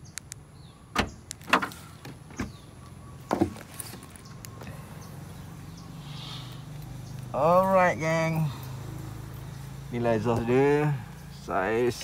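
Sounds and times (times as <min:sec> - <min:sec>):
car boot lid clicks and knocks: 0:00.9 - 0:02.6.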